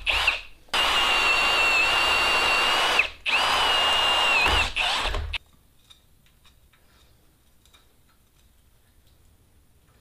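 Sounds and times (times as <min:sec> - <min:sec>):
electric drill boring into metal: 0:00.0 - 0:05.4.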